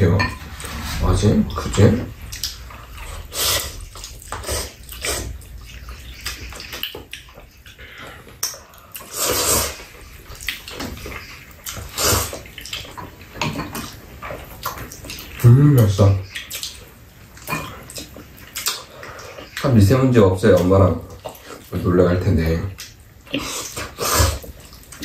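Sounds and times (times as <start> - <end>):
person slurping noodles: 0.6 - 5.5, 9.0 - 9.9, 23.4 - 24.5.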